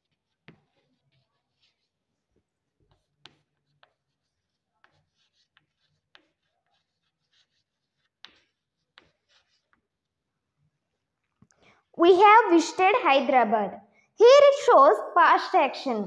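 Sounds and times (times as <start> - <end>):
chalk tapping on board: 0.0 - 2.0, 2.8 - 10.0
chalk scratching on chalkboard: 0.0 - 10.2.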